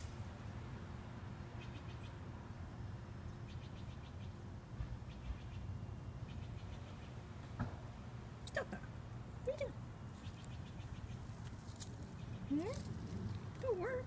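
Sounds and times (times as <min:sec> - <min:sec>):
steady low rumble: 0:00.0 - 0:14.0
small bird chirping: 0:01.6 - 0:02.2, 0:03.3 - 0:04.4, 0:10.1 - 0:12.9.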